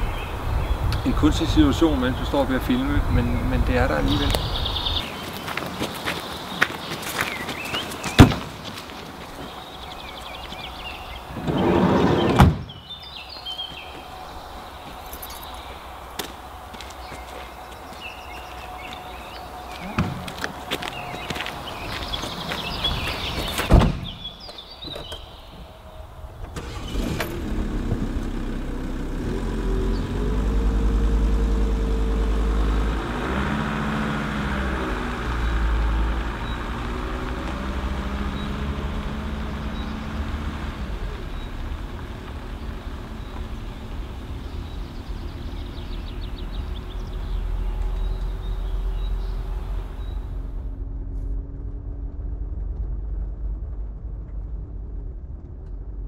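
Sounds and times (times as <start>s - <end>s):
van engine pulling away: 0.0s - 56.0s
van door slamming: 11.4s - 12.8s, 19.9s - 20.3s, 23.4s - 24.3s.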